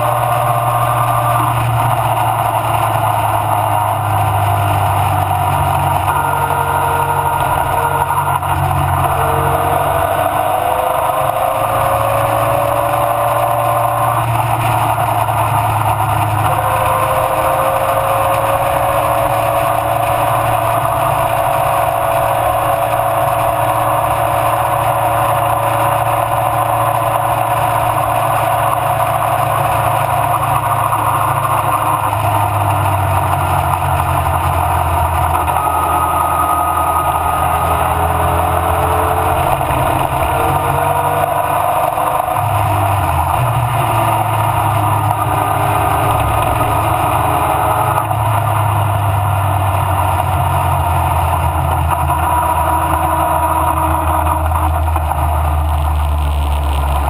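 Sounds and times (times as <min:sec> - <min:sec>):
racing car engine revving: 0:00.0 - 0:57.0.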